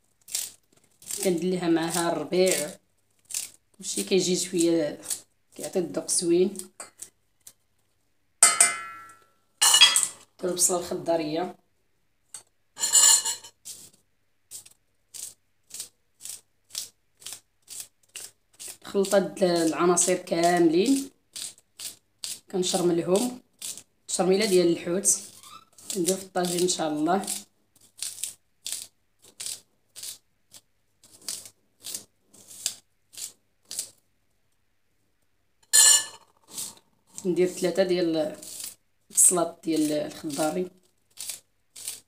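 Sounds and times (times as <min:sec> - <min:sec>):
knife slicing spring onion: 0:00.3 - 0:05.8, 0:14.5 - 0:34.0, 0:36.4 - 0:42.0
knife slicing green onion: 0:24.4 - 0:30.2.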